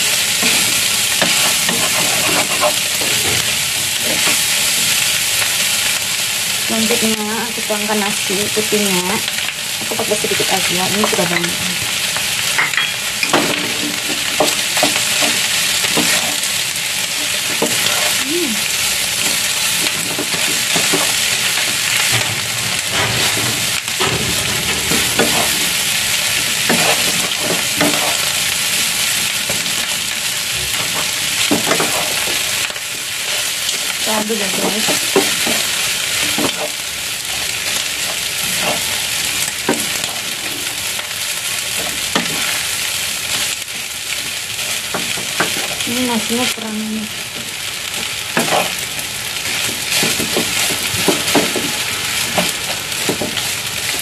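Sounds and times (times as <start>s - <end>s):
spatula scraping a pan: 0.0s - 5.0s, 13.2s - 18.2s, 22.8s - 28.5s, 30.7s - 32.6s
food sizzling in a frying pan: 0.0s - 54.0s.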